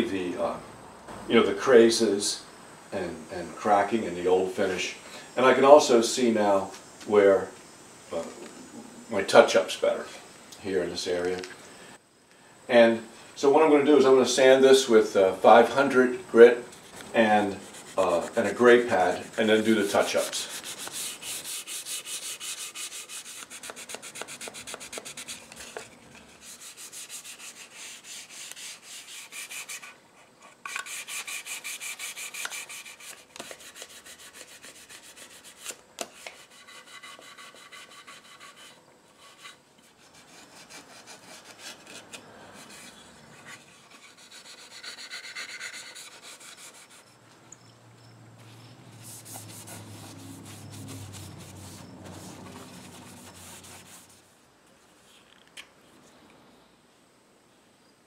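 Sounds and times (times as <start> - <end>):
sandpaper scrubbing on wood: 16.8 - 30.0, 30.7 - 43.0, 43.6 - 47.1, 48.9 - 54.2.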